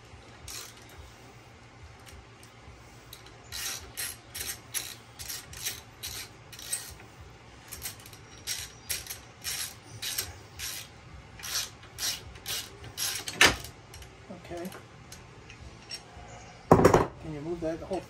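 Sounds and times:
ratchet wrench clicking: 0.4 - 1.0, 3.1 - 14.1.

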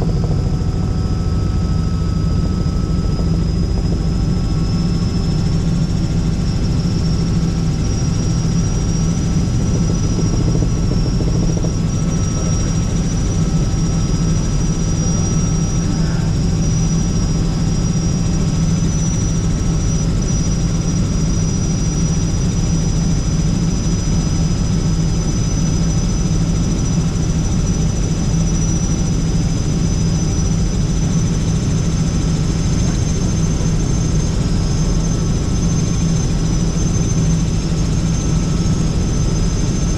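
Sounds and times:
thin high whine: 0.0 - 22.4
helicopter rotor and engine drone: 0.0 - 39.9.

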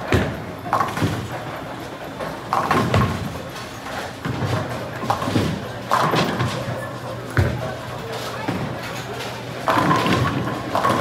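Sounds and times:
bowling balls thudding: 0.0 - 1.6, 2.3 - 3.5, 4.1 - 7.8, 9.6 - 11.0.

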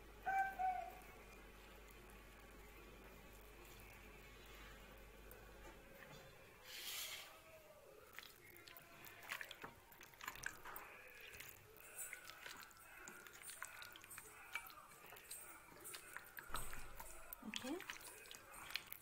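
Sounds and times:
hand squelching chicken in marinade: 6.7 - 19.0.

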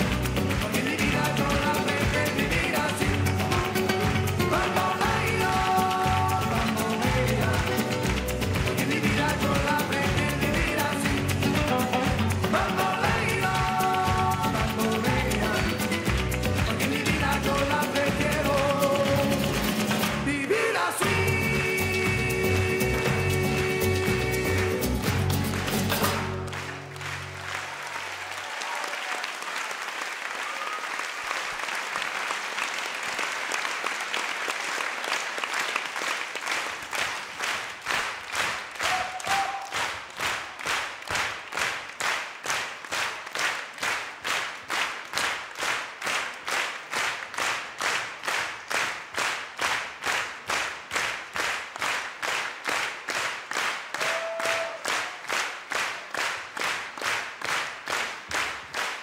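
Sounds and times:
dance music: 0.0 - 26.4
audience applauding: 0.0 - 59.0
rhythmic clapping in unison: 0.0 - 59.0.

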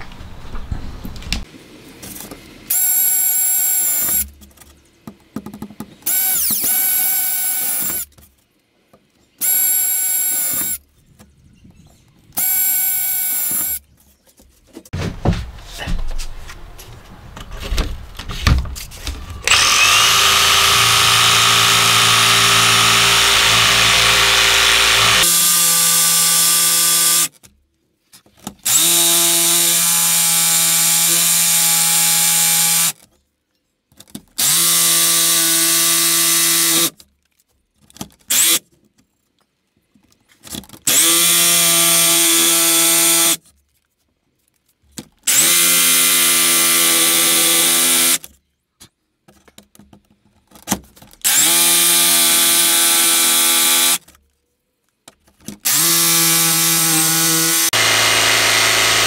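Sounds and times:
jigsaw cutting wood: 19.1 - 27.4, 28.7 - 33.0, 34.4 - 36.9, 40.9 - 43.4, 45.3 - 48.2, 51.3 - 54.0, 55.6 - 59.0.

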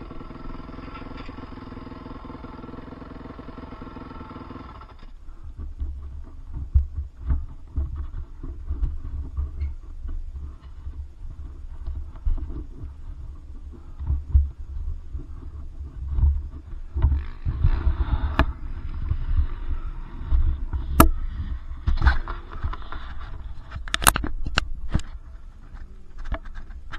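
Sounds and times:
sharp clicks and knocks: 4.8 - 19.4, 20.3 - 26.9
low rumbling thumps: 5.1 - 25.7.

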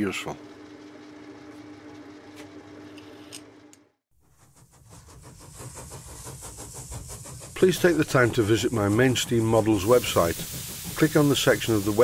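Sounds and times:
rising hiss with mechanical ticking: 4.4 - 12.0.

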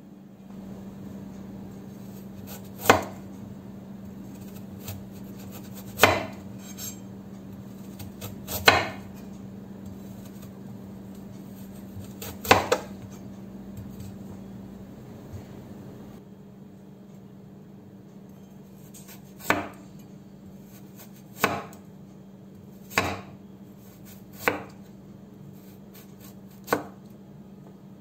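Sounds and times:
knife chopping on wooden board: 2.1 - 3.3, 4.3 - 7.0, 7.8 - 9.2, 11.5 - 14.2, 18.9 - 19.8, 20.7 - 21.8, 22.8 - 23.4, 24.0 - 24.8, 26.0 - 27.0.

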